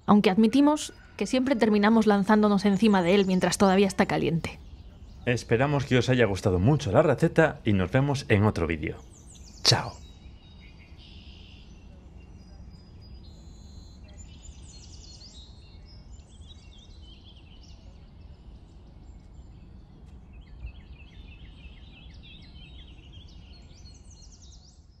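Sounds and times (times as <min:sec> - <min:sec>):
low outdoor rumble: 0:00.0 - 0:10.1
small birds chirping and trilling: 0:00.0 - 0:25.0.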